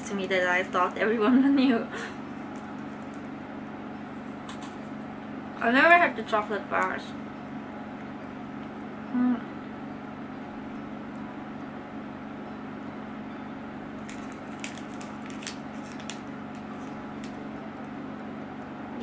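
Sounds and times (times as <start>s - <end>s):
wrapper crinkling: 2.2s - 3.3s, 13.9s - 17.5s
sharp crackles: 14.0s - 17.4s.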